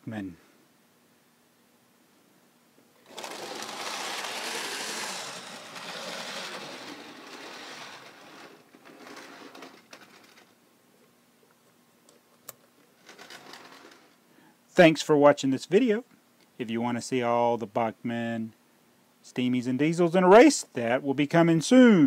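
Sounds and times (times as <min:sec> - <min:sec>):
model train motor whirring: 0:03.0 - 0:10.5, 0:13.0 - 0:14.2
wheels rattling on rails: 0:03.1 - 0:10.4.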